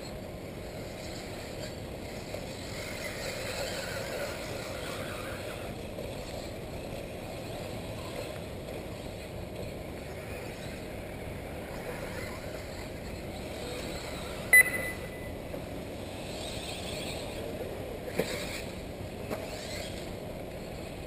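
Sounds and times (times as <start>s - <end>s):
electric motors whining: 0.0s - 14.5s, 15.3s - 21.0s
short sharp high beep: 14.5s - 15.4s.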